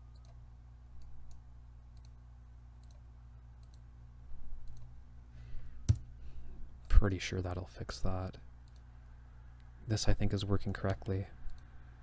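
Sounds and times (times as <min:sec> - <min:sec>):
low electrical hum: 0:00.0 - 0:12.0
computer mouse clicks: 0:00.1 - 0:00.4, 0:01.0 - 0:02.2, 0:02.8 - 0:03.0, 0:03.6 - 0:03.8, 0:04.6 - 0:04.9, 0:08.6 - 0:08.9, 0:10.8 - 0:11.7.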